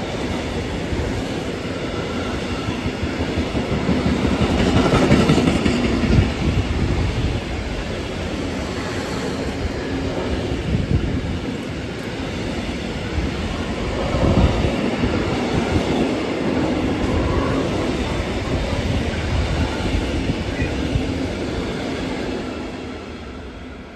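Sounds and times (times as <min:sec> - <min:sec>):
freight train rolling past: 0:00.0 - 0:23.9
wheels clattering on rails: 0:02.2 - 0:10.8.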